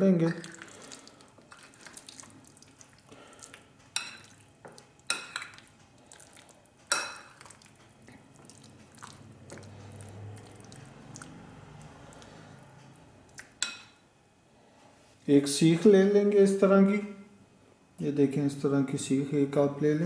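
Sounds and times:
wet squelching of marinade: 0.0 - 13.6.

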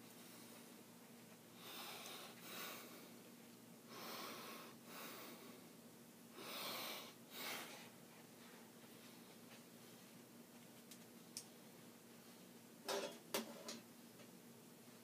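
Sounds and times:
soft airy breathing: 0.0 - 0.8, 1.4 - 10.2
low electrical hum: 0.0 - 15.0.

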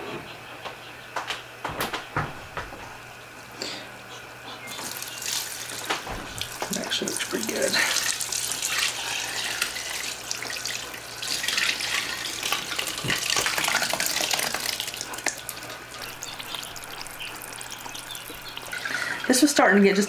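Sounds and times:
liquid fat pouring and splashing: 4.8 - 19.2.

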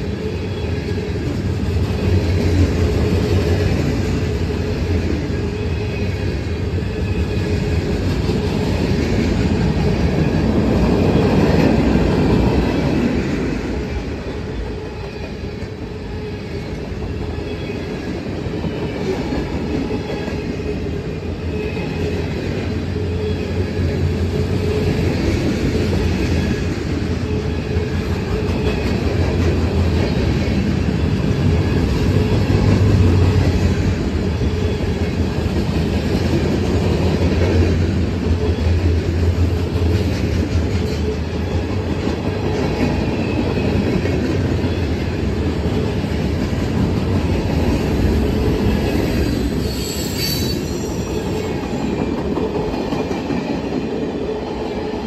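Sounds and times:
train wheels rumbling on rails: 0.0 - 55.0
faint wheel squeal: 49.3 - 51.5.

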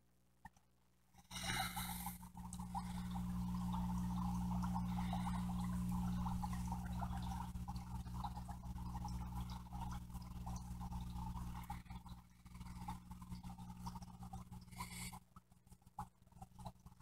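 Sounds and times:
steady low hum: 1.2 - 17.0
aquarium bubbles popping: 1.3 - 17.0.

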